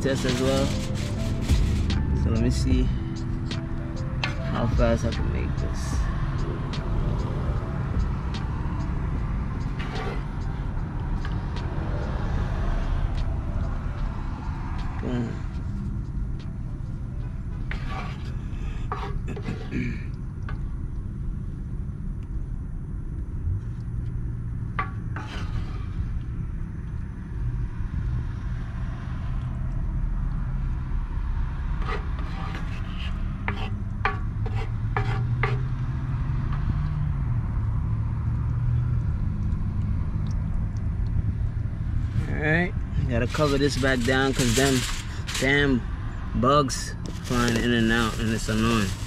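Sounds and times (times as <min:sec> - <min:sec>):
utensils clicking and scraping: 0:00.0 - 0:02.1, 0:09.6 - 0:10.5, 0:43.2 - 0:45.8, 0:47.0 - 0:49.0
steady low rumble: 0:00.0 - 0:28.1, 0:37.1 - 0:49.0.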